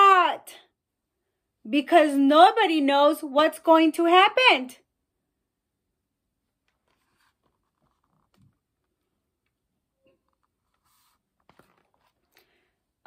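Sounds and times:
paper rustling: 6.6 - 12.6.

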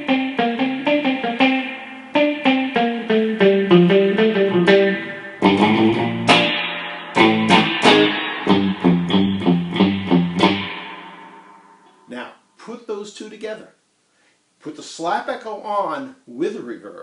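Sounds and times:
clean electric guitar with reverb: 0.0 - 12.1.

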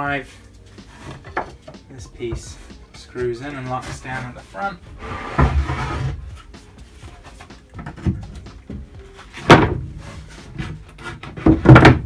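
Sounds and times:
wooden panel knocks: 9.4 - 9.9, 11.4 - 12.0
loud wooden thump: 9.4 - 10.0, 11.4 - 12.0.

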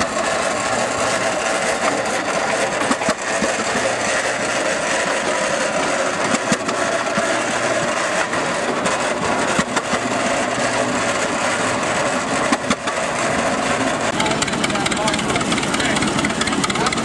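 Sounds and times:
tractor engine running: 0.0 - 17.0.

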